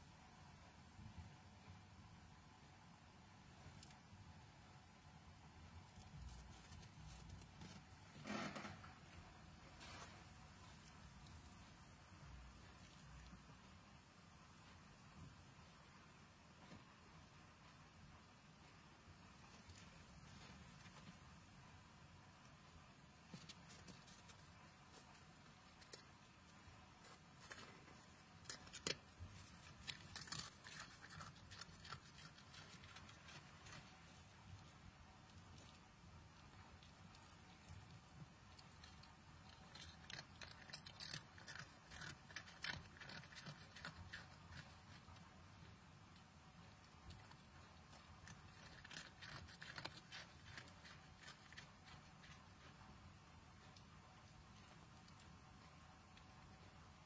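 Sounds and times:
low steady hum: 0.0 - 57.0
fox chewing a hard pretzel: 23.3 - 45.9, 46.6 - 53.0.

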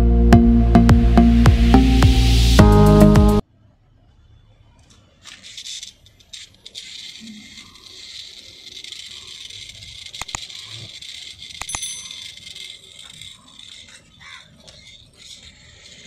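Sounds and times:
clicks: 4.8 - 14.0
small motor and gears whirring: 4.8 - 16.0.

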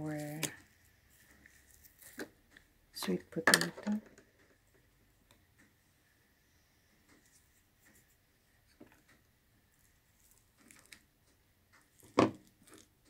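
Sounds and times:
spoon squishing batter in bowl: 0.1 - 2.8, 7.1 - 13.0.

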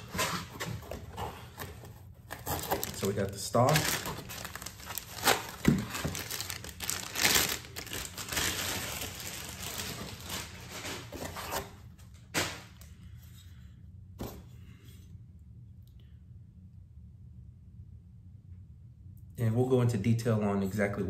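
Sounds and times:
plastic bag crinkling: 2.3 - 11.4.

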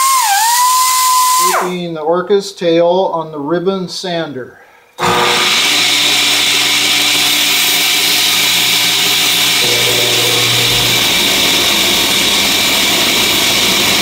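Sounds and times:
belt sander hissing: 5.0 - 14.0.

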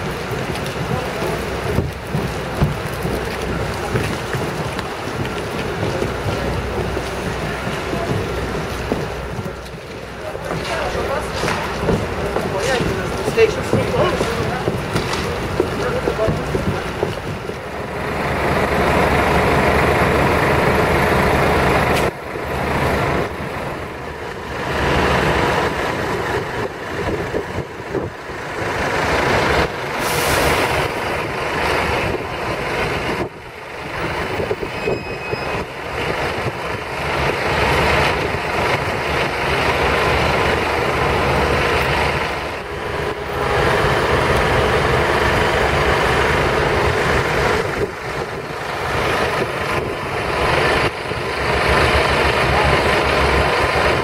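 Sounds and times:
diesel bus engines humming: 0.0 - 54.0
tyres hissing on wet road: 0.0 - 54.0
air-brake hiss: 30.0 - 30.8.

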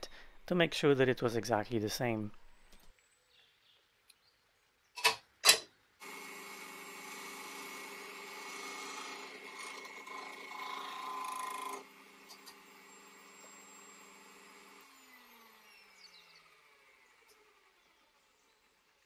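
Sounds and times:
chisel cutting wood: 6.0 - 18.7
lathe motor hum: 6.0 - 19.0.

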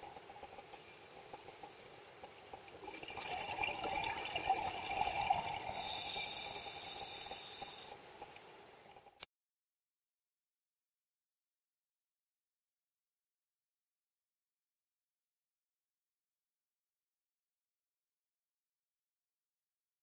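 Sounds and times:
bubbles rushing: 2.8 - 5.7
scuba diver breathing through regulator: 5.6 - 8.0.

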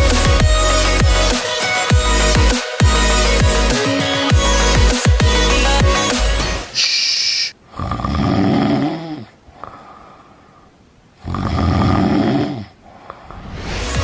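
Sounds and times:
lion snoring: 7.8 - 9.4, 11.2 - 12.8.

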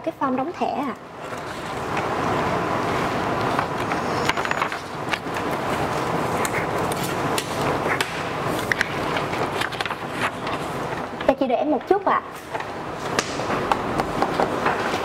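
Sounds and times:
paper being handled: 2.8 - 11.1.

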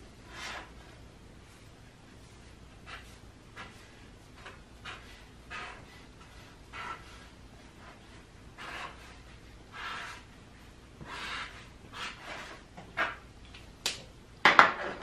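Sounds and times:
marker scratching on paper: 0.3 - 1.0, 2.7 - 13.2.

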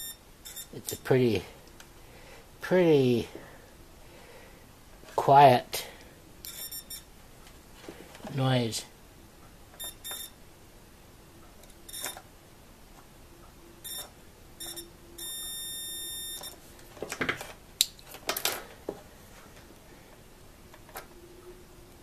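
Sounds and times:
multimeter beeps: 0.0 - 1.0, 6.4 - 7.1, 9.8 - 10.4, 11.8 - 12.2, 13.8 - 16.6.

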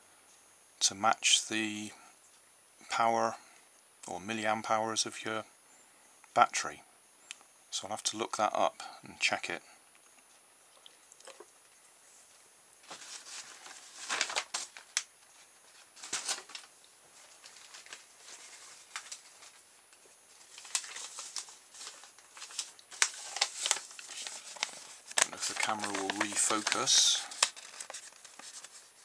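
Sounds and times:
rustling and crinkling: 10.0 - 29.0.

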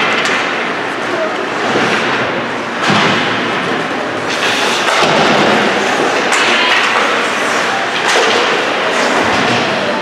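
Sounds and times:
hockey sticks or puck knocking: 0.0 - 0.8, 4.3 - 10.0
skate blades scraping ice: 4.2 - 9.5.

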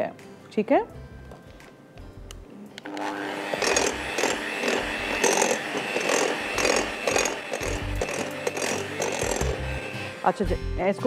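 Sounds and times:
electric hand mixer running: 2.8 - 10.6
beaters scraping glass bowl: 3.5 - 10.0.

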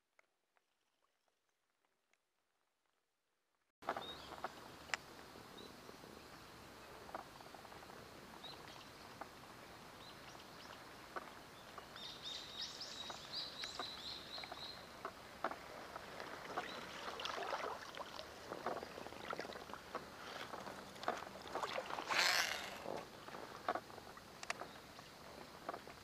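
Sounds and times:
bird chirping: 11.6 - 14.9
water splashing around boat hull: 13.0 - 26.0.

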